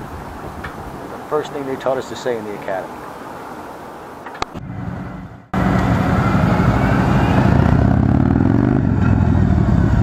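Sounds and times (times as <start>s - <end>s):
motorcycle engine running: 5.6s - 10.0s.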